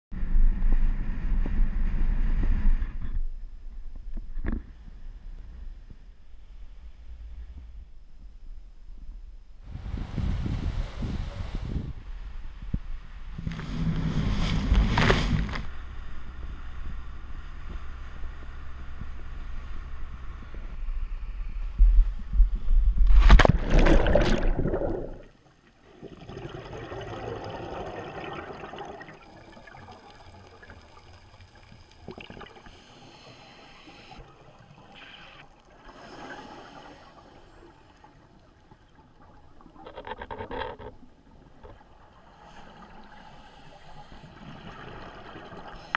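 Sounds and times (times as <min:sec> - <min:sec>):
wind buffeting microphone: 0:09.6 - 0:15.6
regulator bubbles gurgling: 0:23.5 - 0:33.0, 0:41.6 - 0:45.9
underwater camera housing: 0:39.8 - 0:41.9.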